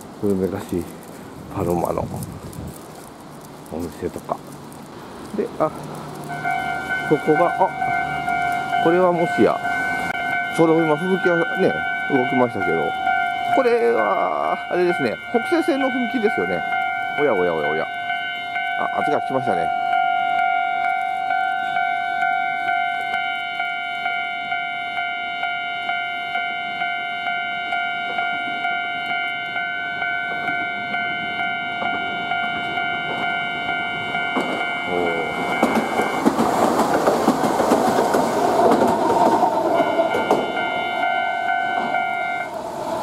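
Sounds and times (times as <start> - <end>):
train rumble and wheel clatter: 0.0 - 43.0
level crossing bell ringing: 6.3 - 36.3, 39.7 - 42.5.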